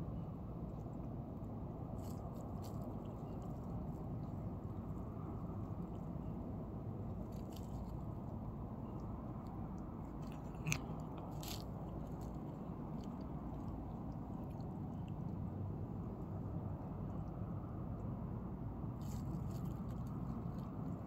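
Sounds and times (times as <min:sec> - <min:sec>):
low background noise: 0:00.0 - 0:21.0
cat chewing food: 0:02.0 - 0:06.4, 0:07.0 - 0:15.5.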